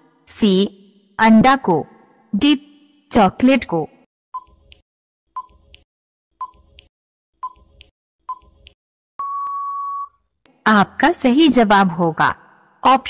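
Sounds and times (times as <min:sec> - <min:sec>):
long steady beep: 0:09.2 - 0:10.2
short beeps: 0:09.2 - 0:10.2.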